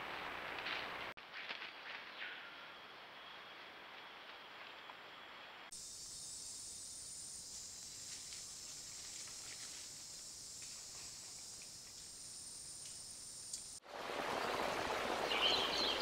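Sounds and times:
low forest ambience: 0:00.0 - 0:16.0
insect chorus hiss: 0:05.4 - 0:16.0
small ticks: 0:10.5 - 0:13.8.

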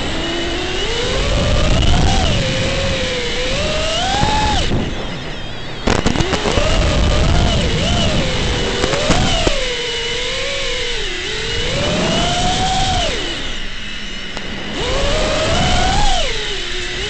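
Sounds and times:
drone motors whining: 0:00.0 - 0:17.0
crackling clicks: 0:05.8 - 0:09.7, 0:12.8 - 0:17.0.

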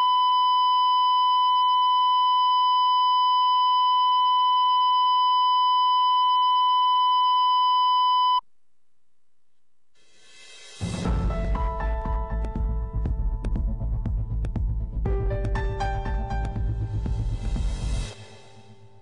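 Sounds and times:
steady test tone beep: 0:00.0 - 0:08.4.

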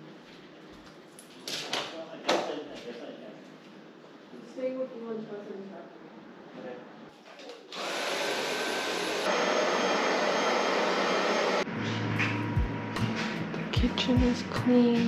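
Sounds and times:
vacuum cleaner motor whine: 0:07.7 - 0:11.7.

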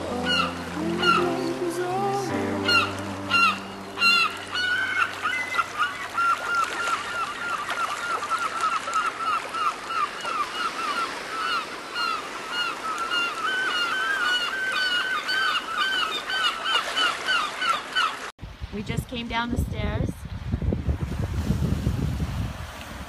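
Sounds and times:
chorus of animals honking: 0:00.1 - 0:05.2.

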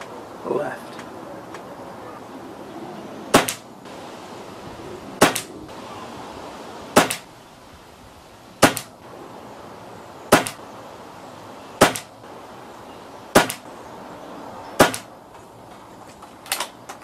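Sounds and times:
air rifle shots cracking: 0:03.3 - 0:03.7, 0:05.2 - 0:05.8, 0:06.9 - 0:07.3, 0:08.6 - 0:09.1, 0:10.3 - 0:10.7, 0:11.8 - 0:12.4, 0:13.3 - 0:13.7, 0:14.8 - 0:15.2.

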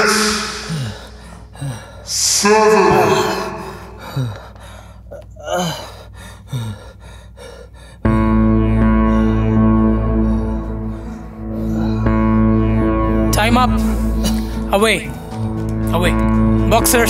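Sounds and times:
man gasping for breath: 0:00.0 - 0:02.4, 0:03.0 - 0:08.4
man groaning: 0:00.0 - 0:04.6.

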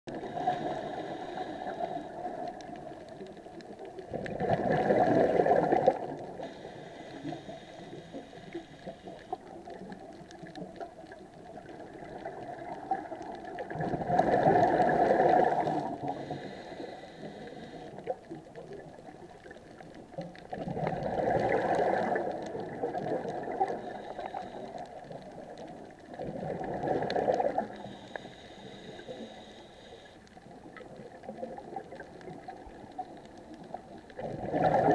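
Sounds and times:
soft regulator hiss: 0:00.1 - 0:04.0, 0:05.1 - 0:20.2, 0:21.5 - 0:26.1, 0:27.0 - 0:34.1
regulator bubbling underwater: 0:00.1 - 0:34.9.

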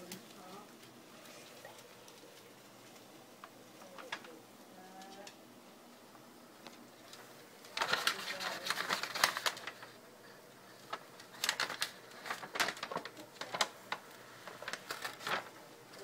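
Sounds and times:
paper bag crinkling: 0:03.8 - 0:04.4, 0:07.0 - 0:16.0.

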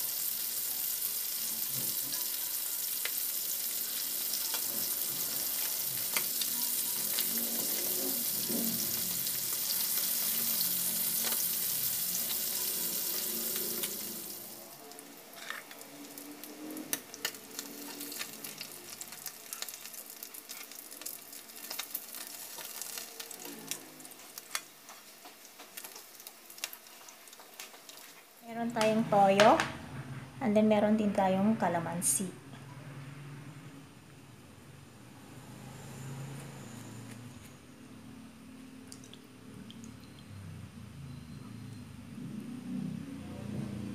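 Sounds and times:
fish sizzling in hot oil: 0:00.0 - 0:28.5.

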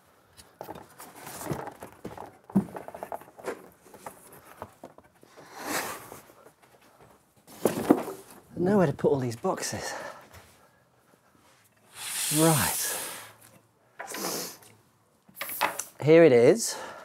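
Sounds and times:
cardboard knocks and rustles: 0:00.6 - 0:05.0.

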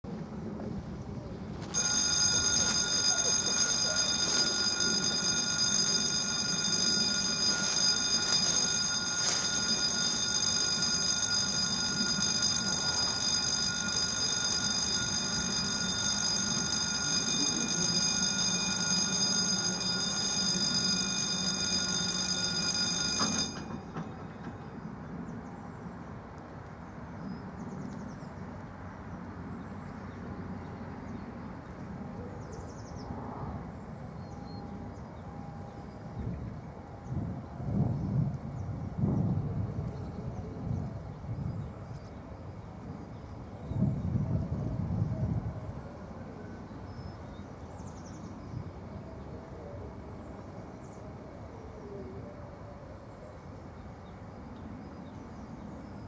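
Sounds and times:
level-crossing warning bell ringing: 0:01.6 - 0:25.4, 0:34.1 - 0:37.7.

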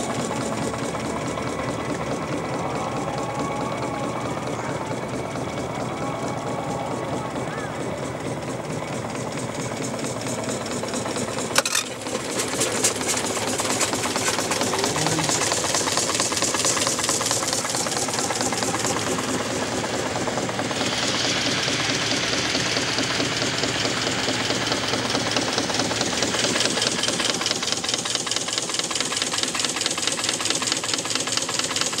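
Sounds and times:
engine knock: 0:00.0 - 0:32.0
steam engine beat: 0:00.0 - 0:32.0.

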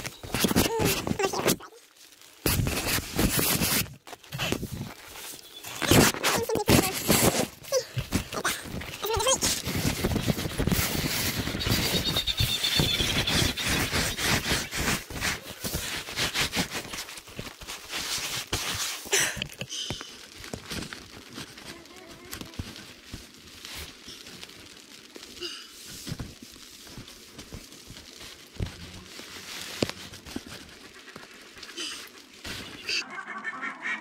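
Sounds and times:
tent fabric rustling: 0:00.0 - 0:33.0.

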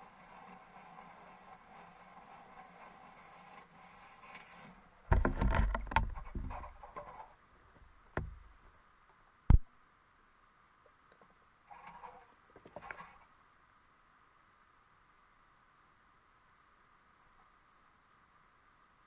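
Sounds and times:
faint steady hum: 0:00.0 - 0:19.0
knocks and thumps: 0:05.1 - 0:07.2, 0:07.8 - 0:08.7.

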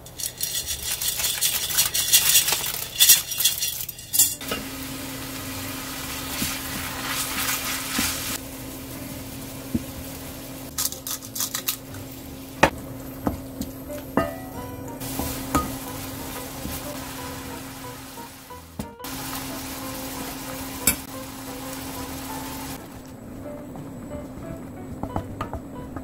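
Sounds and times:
utensils clinking: 0:00.0 - 0:04.8, 0:10.7 - 0:12.1, 0:13.1 - 0:17.2, 0:20.6 - 0:21.1
minced meat sizzling in wok: 0:04.3 - 0:24.6
wooden spatula scraping: 0:06.1 - 0:08.4.

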